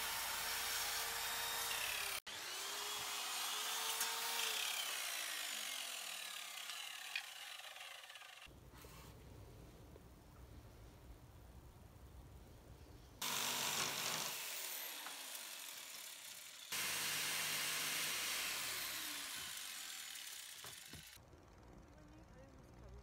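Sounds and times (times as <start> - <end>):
cordless drill whirring into wood: 0.0 - 8.5, 13.2 - 21.2.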